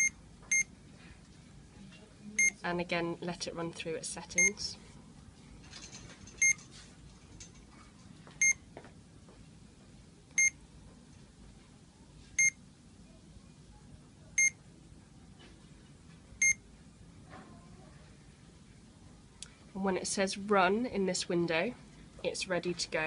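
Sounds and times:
infusion pump beeping: 0.0 - 0.7, 2.4 - 2.6, 6.4 - 6.6, 8.4 - 8.6, 16.4 - 16.6.

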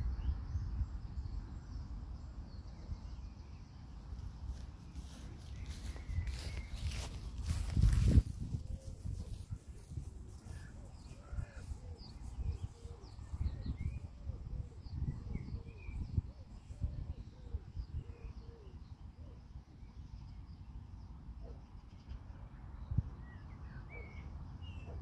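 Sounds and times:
birds calling: 4.5 - 19.4.

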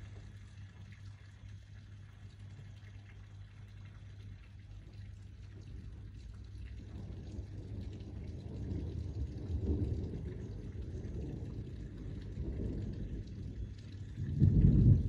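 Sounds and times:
thunder rumbling: 6.8 - 15.0.

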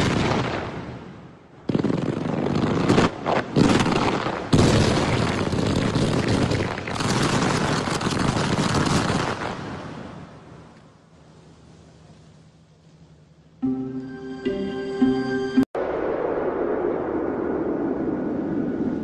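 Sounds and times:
fireworks bangs and crackle: 0.0 - 10.1.

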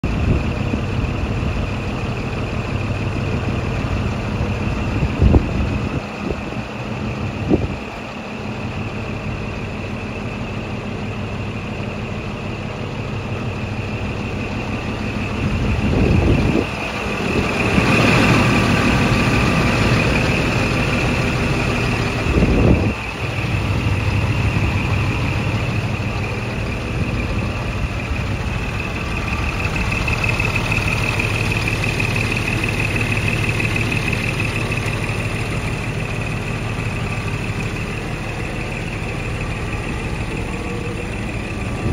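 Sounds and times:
diesel truck idling: 0.0 - 41.9
high whine: 12.6 - 41.9.

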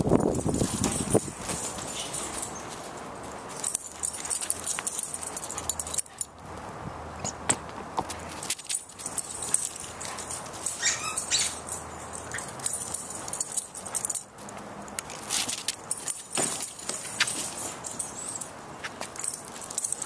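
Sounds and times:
collar tags jingling: 0.0 - 20.0
rising squeak: 10.8 - 11.6.

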